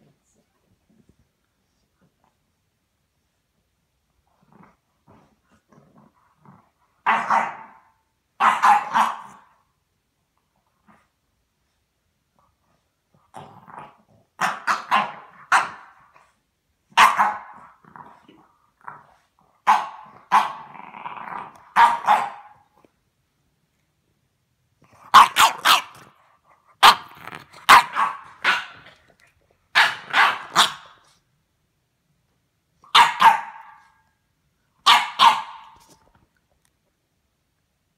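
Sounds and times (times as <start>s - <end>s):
dog barking: 7.1s - 9.5s, 17.0s - 17.6s, 19.7s - 20.6s, 21.8s - 22.6s, 25.1s - 26.0s, 26.8s - 28.8s, 29.7s - 31.0s, 32.9s - 34.0s, 34.8s - 35.8s
dog growling: 20.0s - 21.8s, 24.8s - 29.3s.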